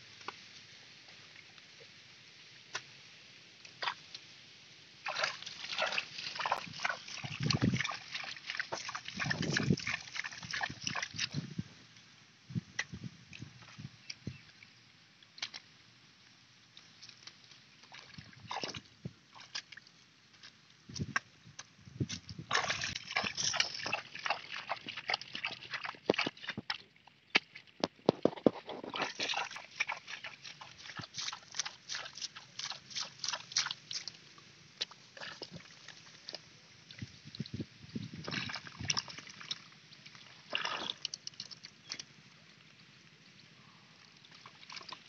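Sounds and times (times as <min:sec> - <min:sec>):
hands splashing in muddy water: 0:05.0 - 0:11.4, 0:22.1 - 0:34.2, 0:38.2 - 0:42.1.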